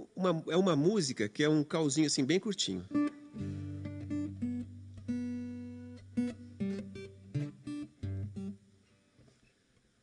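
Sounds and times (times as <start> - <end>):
plucked folk guitar: 2.9 - 8.6.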